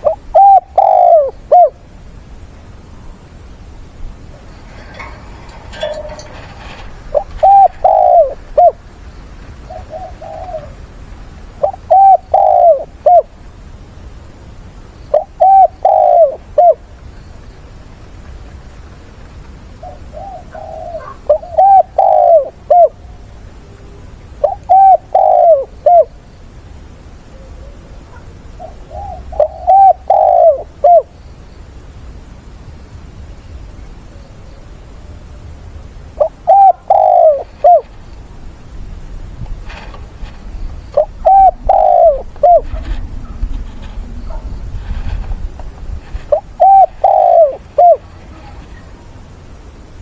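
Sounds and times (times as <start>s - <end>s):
dove cooing: 0.0s - 1.8s, 4.3s - 8.8s, 9.6s - 10.8s, 11.6s - 13.3s, 15.1s - 16.8s, 19.8s - 23.0s, 24.4s - 26.1s, 27.3s - 31.1s, 36.2s - 37.9s, 41.0s - 43.4s, 46.3s - 48.8s.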